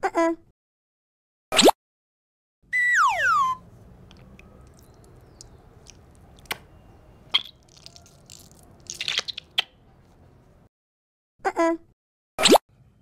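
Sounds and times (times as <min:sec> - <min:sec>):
stress ball squelching: 0:07.4 - 0:09.7.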